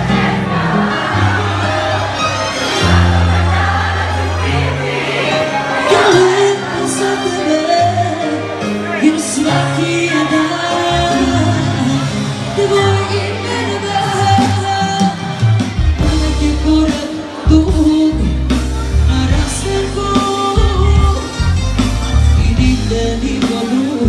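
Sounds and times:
live band music: 0:00.0 - 0:24.0
woman singing: 0:09.0 - 0:15.4, 0:16.0 - 0:21.4.

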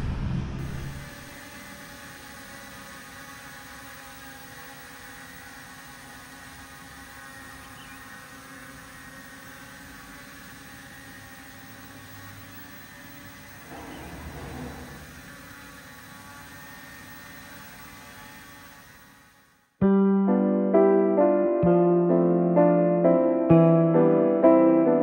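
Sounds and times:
drone propellers whirring: 0:00.0 - 0:19.7.

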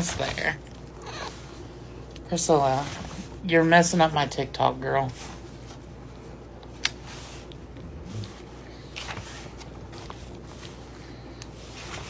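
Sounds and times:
pages being turned: 0:08.2 - 0:10.8, 0:11.4 - 0:12.0.

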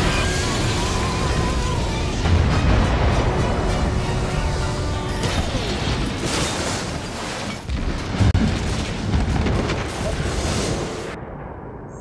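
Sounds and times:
music: 0:00.0 - 0:05.6.

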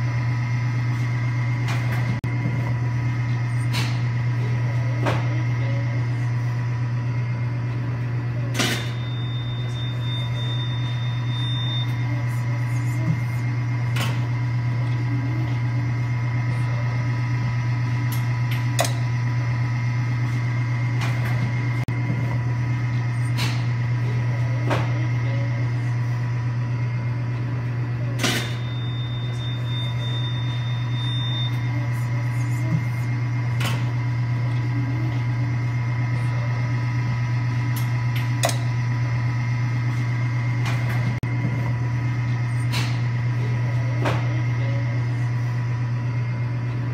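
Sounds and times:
low machine hum: 0:00.0 - 0:46.9.

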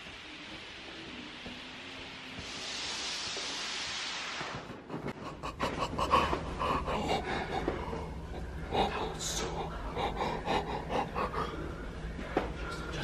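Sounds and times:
steady rustling hiss: 0:00.0 - 0:13.0
panting: 0:05.1 - 0:12.0
stifled breathy laughter: 0:05.1 - 0:12.0.

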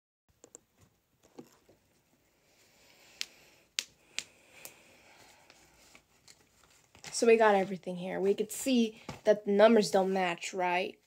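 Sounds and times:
soft handling noise: 0:00.5 - 0:02.3, 0:05.1 - 0:09.3
faint sharp clicks: 0:03.1 - 0:04.8.

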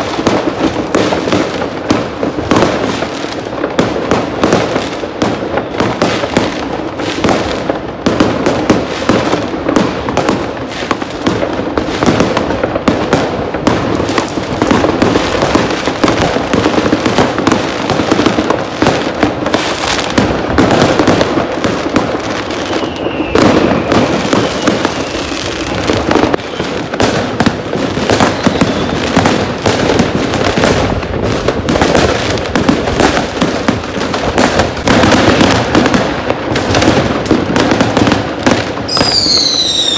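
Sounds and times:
firecracker bangs and crackling: 0:00.0 - 0:39.9
falling firework whistle: 0:22.3 - 0:27.4, 0:28.0 - 0:29.8, 0:38.8 - 0:39.9.

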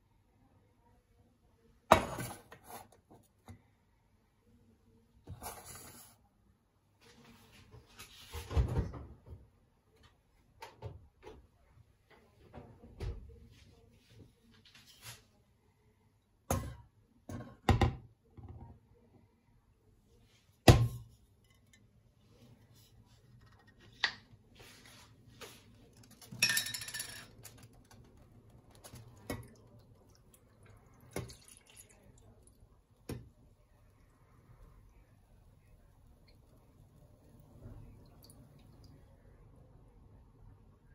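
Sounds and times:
knocks and clinks around a pot: 0:26.0 - 0:33.4.

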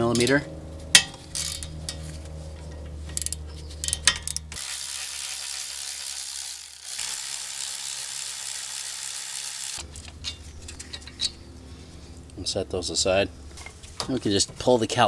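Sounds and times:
cordless ratchet motor whirring: 0:04.2 - 0:09.8.

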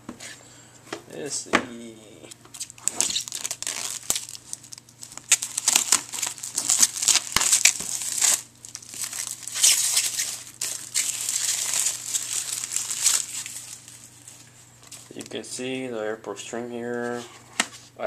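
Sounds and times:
plastic wrap crinkling: 0:02.5 - 0:15.6.

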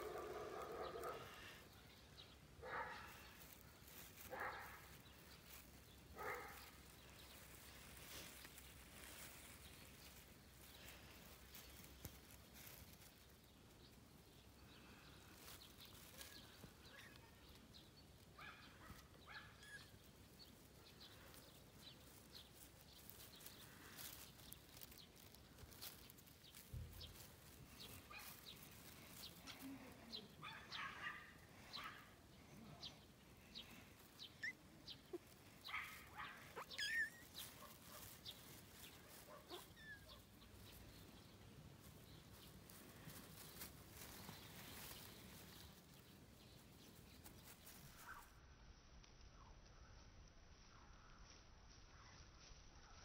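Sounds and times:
high chirping calls: 0:32.8 - 0:40.2.

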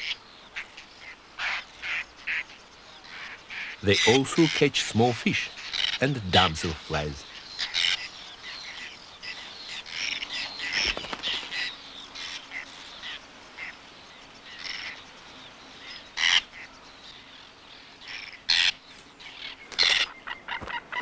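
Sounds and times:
terns calling: 0:00.0 - 0:21.0
chicks begging chirps: 0:18.0 - 0:21.0.

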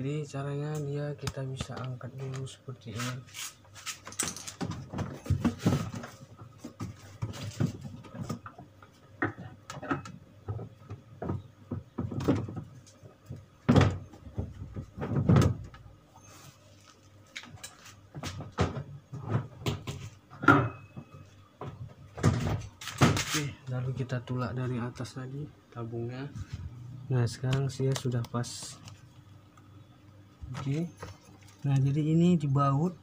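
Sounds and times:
plastic knocks and thumps: 0:04.6 - 0:15.8, 0:18.1 - 0:23.3.

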